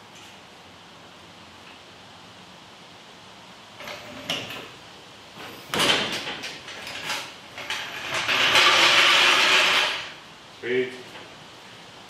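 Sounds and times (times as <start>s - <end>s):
floor jack rolling on concrete: 3.8s - 4.8s, 5.4s - 10.2s
metal clatter: 5.7s - 10.2s.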